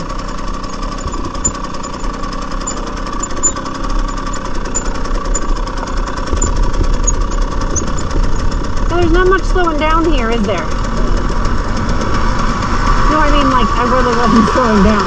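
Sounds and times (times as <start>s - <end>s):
dirt bike engine running: 0.0s - 15.0s.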